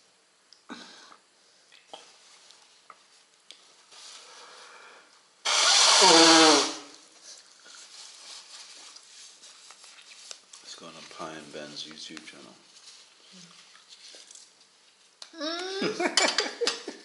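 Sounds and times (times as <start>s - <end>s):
harsh vocal burst from person: 5.9s - 6.9s.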